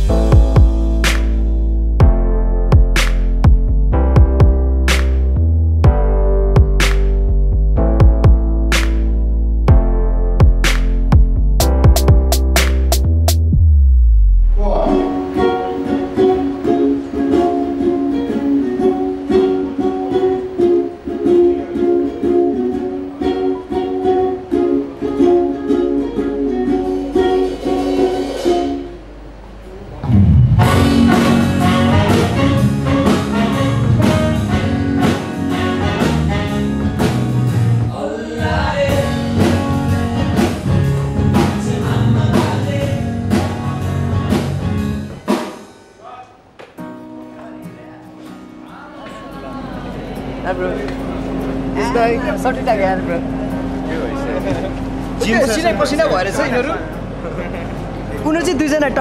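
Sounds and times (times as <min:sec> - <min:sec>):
full band with drums and bass: 0:30.0 - 0:45.8.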